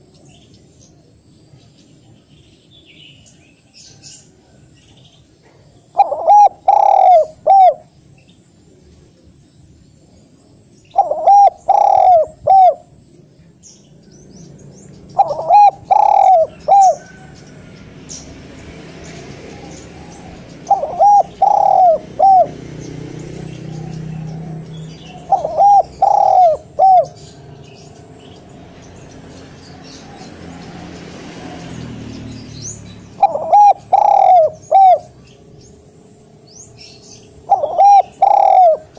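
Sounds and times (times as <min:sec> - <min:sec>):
dove cooing: 0:05.4 - 0:07.9, 0:10.9 - 0:12.9, 0:15.0 - 0:17.4, 0:19.5 - 0:28.1, 0:33.1 - 0:35.4, 0:36.8 - 0:38.9.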